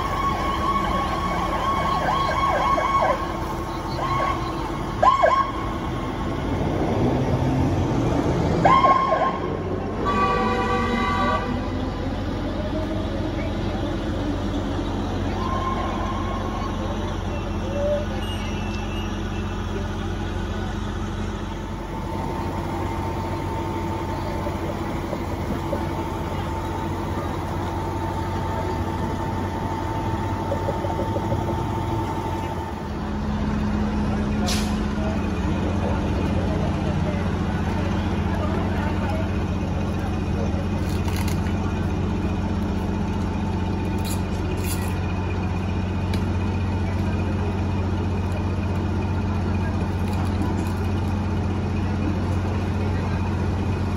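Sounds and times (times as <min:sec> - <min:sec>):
siren chirps: 0:00.0 - 0:06.0, 0:08.6 - 0:09.6, 0:14.2 - 0:19.7
vehicle engine rumbling: 0:00.0 - 0:53.9.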